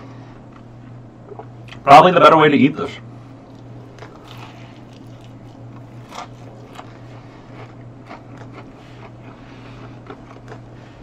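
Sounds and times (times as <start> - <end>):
steady low hum: 0.0 - 11.0
man chewing food: 3.3 - 11.0.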